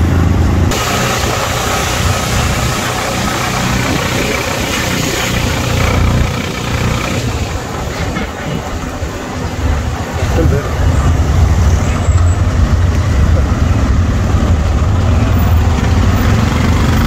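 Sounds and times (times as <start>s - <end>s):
motorcycle engine running: 0.0s - 9.0s, 12.7s - 17.0s
road and traffic noise: 0.0s - 17.0s.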